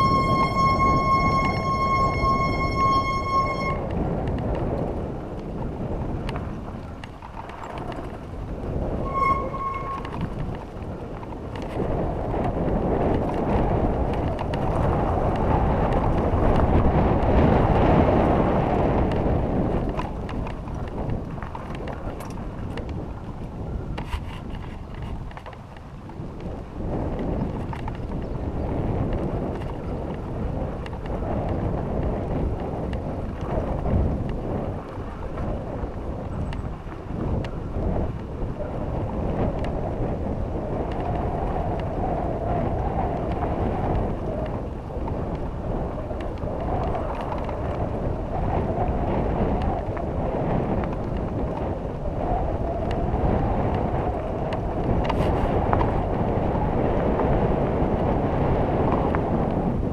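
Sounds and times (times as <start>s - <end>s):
bike rattling over bumps: 0.0s - 59.9s
wind buffeting microphone: 0.0s - 59.9s.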